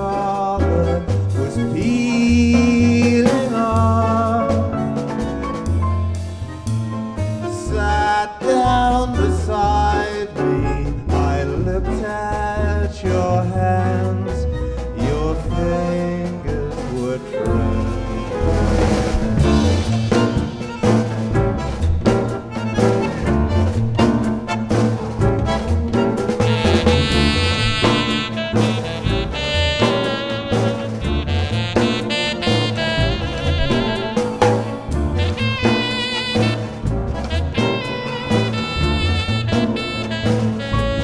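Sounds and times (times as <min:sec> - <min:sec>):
band music: 0:00.0 - 0:41.0
bass line: 0:00.0 - 0:41.0
drums: 0:00.0 - 0:41.0.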